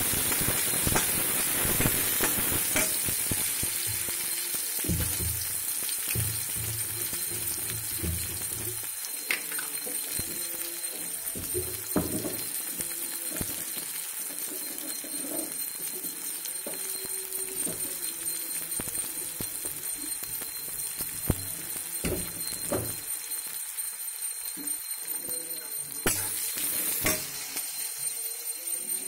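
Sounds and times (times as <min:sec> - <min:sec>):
onions frying: 0:00.0 - 0:29.0
faint high tone: 0:07.2 - 0:13.8, 0:16.4 - 0:20.6
sharp metal clanks: 0:26.1 - 0:27.4.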